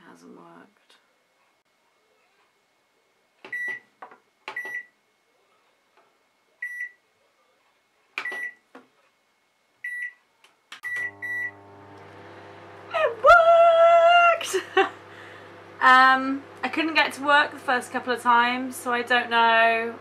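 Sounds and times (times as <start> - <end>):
microwave beeping: 3.5 - 3.9, 4.5 - 4.9, 6.6 - 7.0, 8.2 - 8.6, 9.8 - 10.2, 10.8 - 12.9
microwave humming: 10.8 - 20.0.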